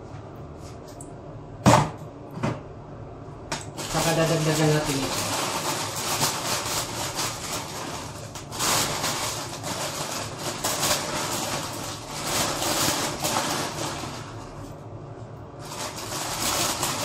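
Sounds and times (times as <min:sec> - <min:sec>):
plastic bag crinkling: 0:03.7 - 0:14.8, 0:15.6 - 0:17.0.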